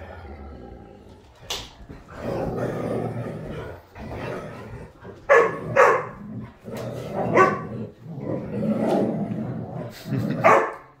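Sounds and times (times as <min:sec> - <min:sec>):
dogs growling: 0:00.0 - 0:10.6
huskies barking: 0:05.2 - 0:06.2, 0:07.3 - 0:07.7.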